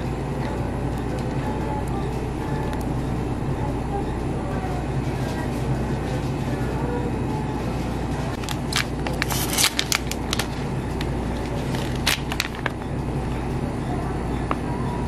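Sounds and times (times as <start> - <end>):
low background hum: 0.0 - 15.0
plastic wrapper crinkling: 8.4 - 12.8.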